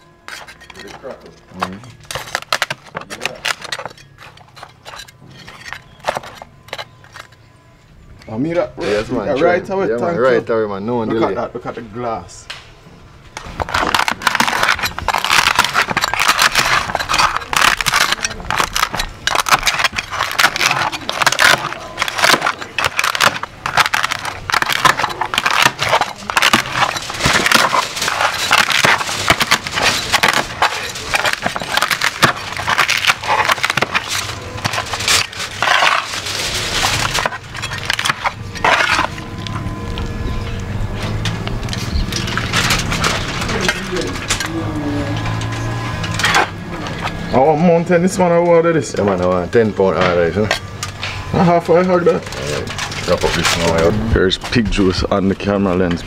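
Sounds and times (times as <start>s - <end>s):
cleavers chopping crisp pork skin: 0.4s - 4.9s, 13.4s - 40.0s.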